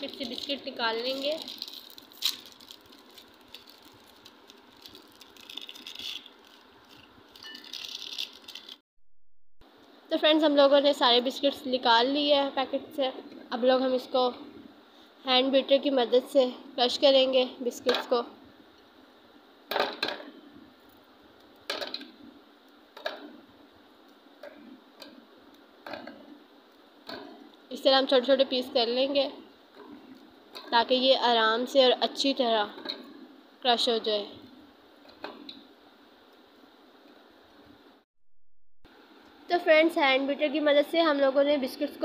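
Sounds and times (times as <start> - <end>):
plastic wrapper crinkling: 0.0 - 8.8.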